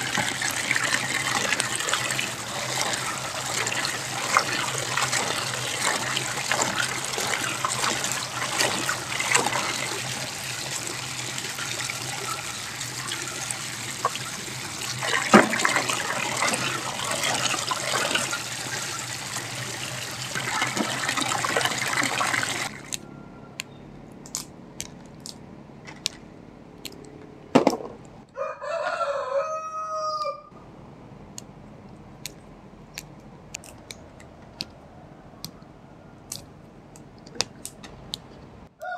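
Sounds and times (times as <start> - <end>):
water pouring into a basin: 0.0 - 22.8
rooster crowing: 22.7 - 23.7, 28.3 - 30.6.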